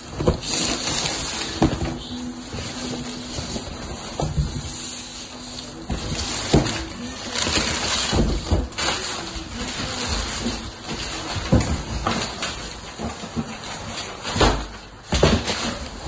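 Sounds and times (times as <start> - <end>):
plastic wrapping rustling: 0.0 - 16.0.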